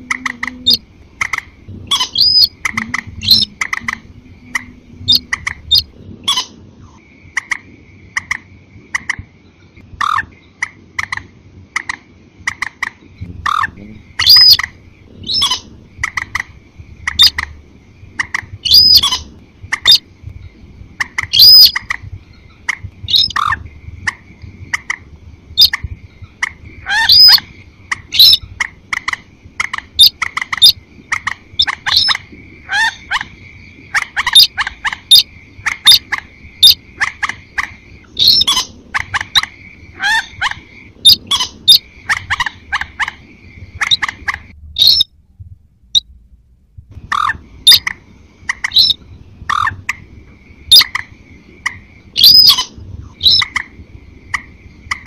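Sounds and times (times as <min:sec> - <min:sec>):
faint steady high tone: 0:00.0 - 0:00.9, 0:02.3 - 0:05.8
rail bird calls: 0:00.0 - 0:45.2, 0:47.0 - 0:55.0.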